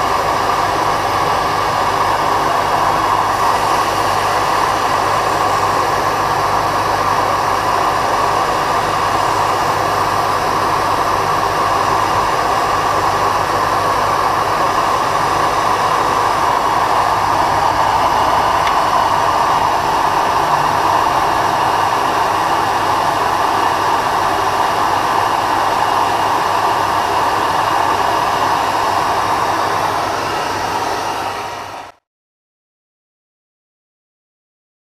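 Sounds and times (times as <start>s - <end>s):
bench grinder humming: 0.0s - 25.6s.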